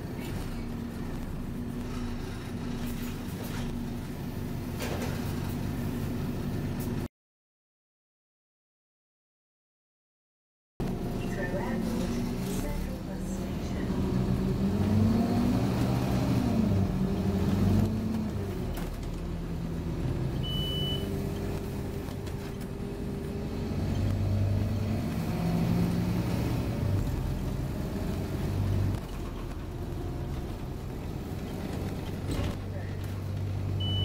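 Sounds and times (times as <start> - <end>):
bus diesel engine: 0.0 - 7.1, 10.8 - 34.0
short high beep: 20.4 - 21.1.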